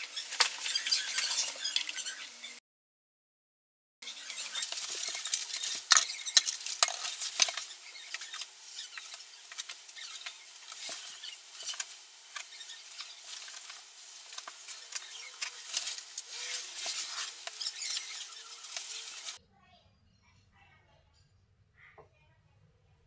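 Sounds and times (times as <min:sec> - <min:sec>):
hands working sealant crackling: 0:04.1 - 0:19.4.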